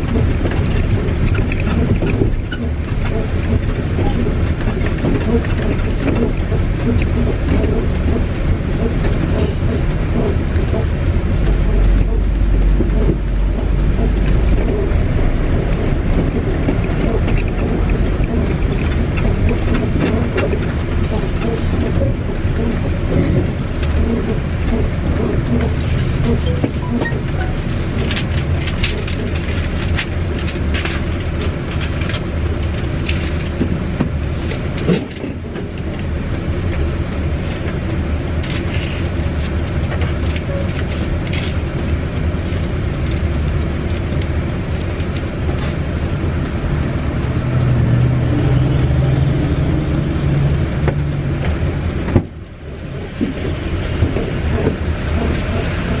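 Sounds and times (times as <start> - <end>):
diesel truck engine idling: 2.6 - 29.6.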